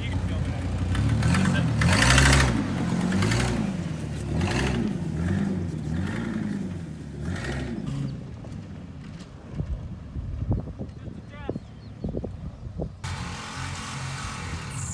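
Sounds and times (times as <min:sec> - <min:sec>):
truck engine revving: 0:00.0 - 0:08.7, 0:13.0 - 0:14.9.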